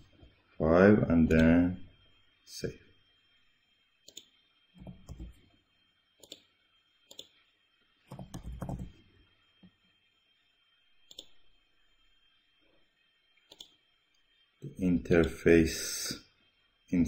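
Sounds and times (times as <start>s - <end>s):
computer mouse clicking: 4.1s - 5.4s, 6.2s - 6.5s, 7.1s - 7.4s, 8.1s - 8.9s, 11.1s - 11.4s, 13.4s - 13.8s.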